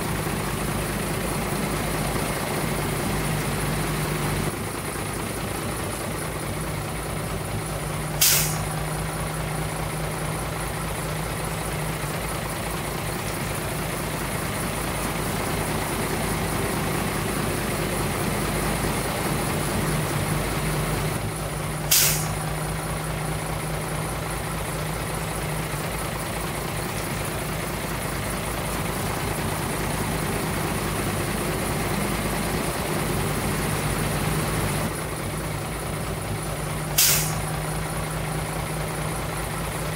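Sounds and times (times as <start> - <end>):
heavy diesel engine running: 0.0 - 39.9
air release hisses: 8.2 - 8.8, 21.9 - 22.5, 36.9 - 37.5.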